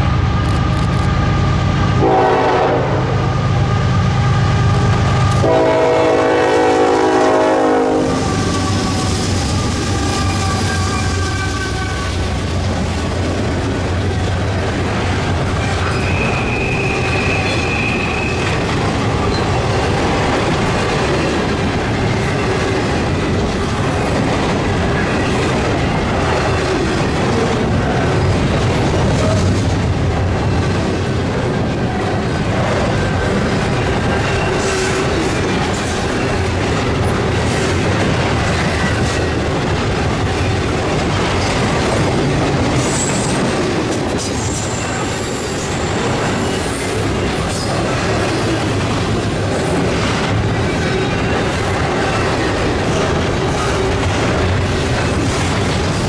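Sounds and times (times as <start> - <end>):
train horn blasts: 2.0 - 3.3, 5.1 - 9.2, 10.1 - 12.4
train wheels clattering on rails: 4.7 - 56.0
high wheel squeal: 8.2 - 12.4, 15.6 - 18.6.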